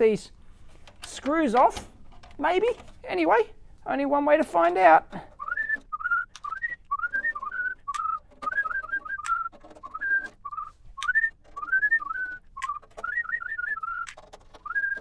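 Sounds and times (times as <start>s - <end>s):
person whistling a tune: 5.4s - 15.0s.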